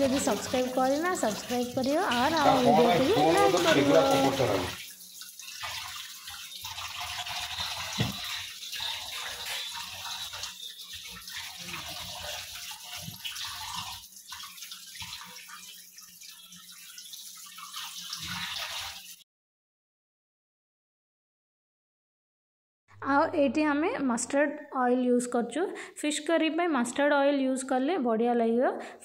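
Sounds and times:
tap water running and splashing: 0.0 - 19.2.

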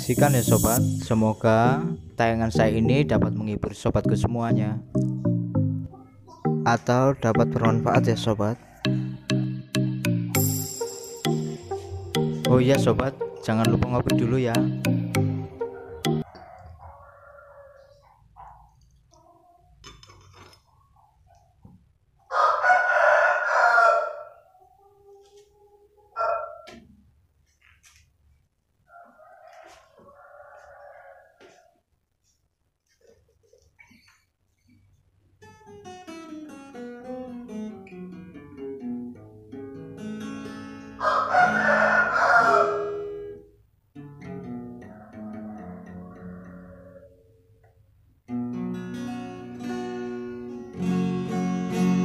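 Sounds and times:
rooster crowing: 15.6 - 18.1, 22.3 - 25.3, 26.1 - 26.8, 28.9 - 31.8, 41.0 - 43.4, 44.6 - 47.3
acoustic guitar fingerstyle: 35.4 - 41.0, 44.0 - 46.5, 48.2 - 52.0.

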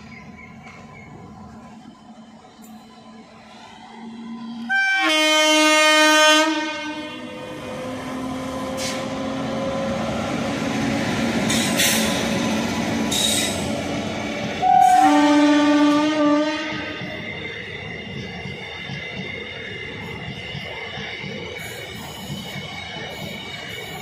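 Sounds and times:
train wheels rumbling on rail: 0.0 - 24.0
train horn blast: 4.7 - 7.5, 14.6 - 17.0.

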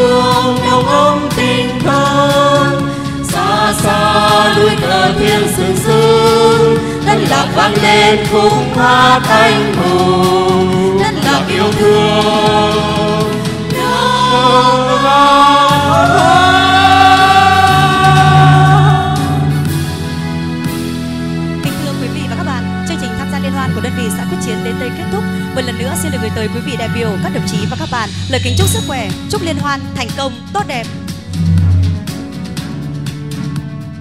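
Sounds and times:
group of voices singing: 0.0 - 20.0
instrumental accompaniment: 0.0 - 34.0.

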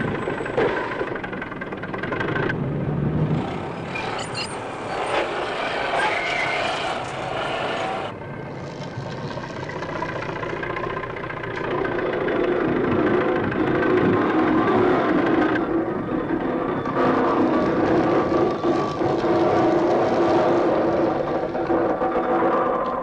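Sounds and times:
knocking and clatter: 0.0 - 2.6
excavator engine: 0.0 - 23.0
heavy truck engine: 0.0 - 23.0.

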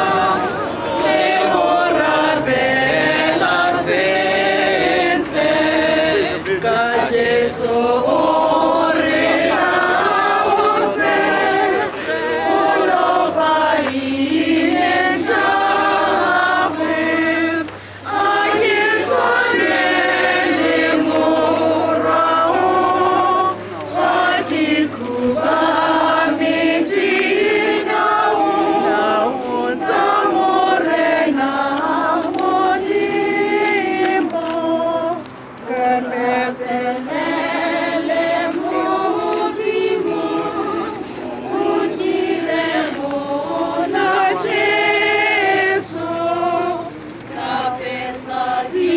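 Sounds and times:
crowd singing a hymn: 0.0 - 48.9.

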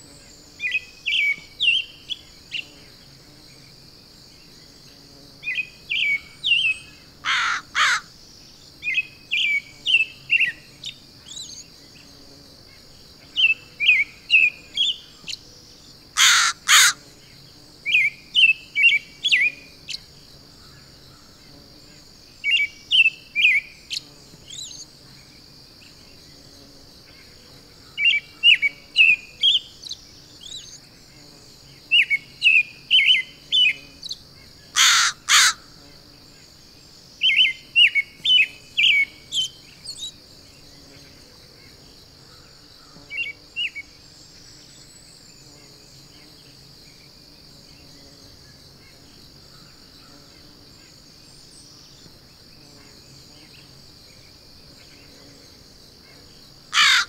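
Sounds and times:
steady high hiss: 0.0 - 57.0
crow cawing harshly: 7.2 - 8.1, 16.2 - 17.0, 34.8 - 35.7, 56.7 - 57.0.

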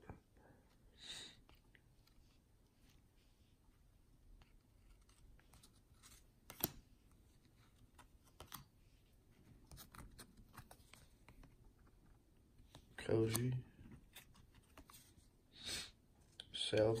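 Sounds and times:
cards being flipped by hand: 4.4 - 8.8, 9.5 - 15.3.

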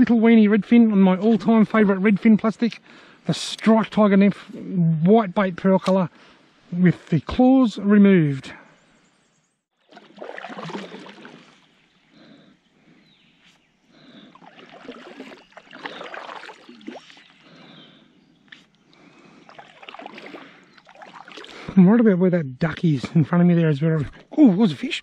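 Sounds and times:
water trickling off paddle: 9.8 - 11.7, 14.3 - 17.6, 18.8 - 21.8
kayak paddle splashing: 9.8 - 11.8, 14.0 - 17.8, 18.9 - 21.8.

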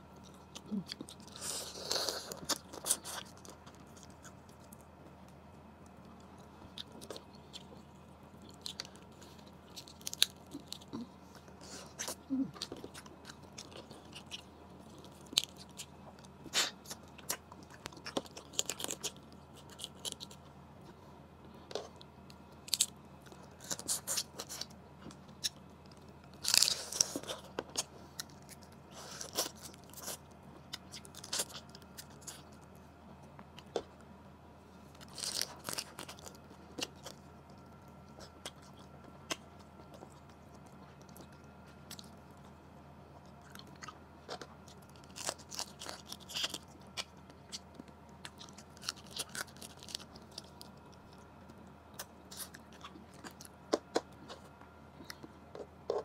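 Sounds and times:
chewing and biting: 0.1 - 34.1, 34.9 - 56.0.

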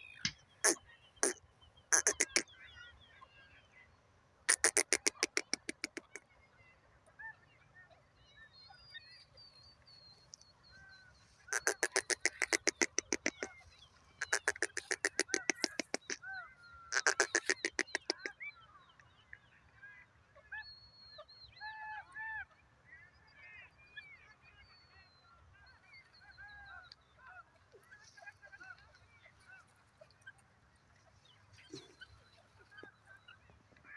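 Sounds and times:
small birds chirping: 0.0 - 3.2, 4.5 - 6.3, 8.4 - 19.7, 25.6 - 33.9
francolin harsh calls: 0.6 - 2.5, 4.5 - 6.2, 11.5 - 13.5, 14.2 - 16.2, 16.9 - 18.3.

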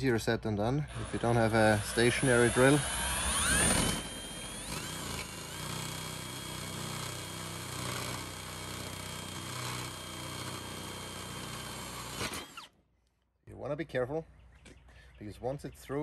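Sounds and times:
electric drill whining: 0.8 - 12.8.

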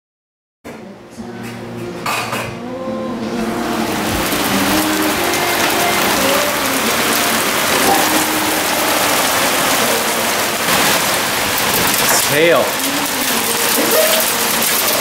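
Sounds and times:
hail and heavy rain pelting: 3.6 - 15.0.

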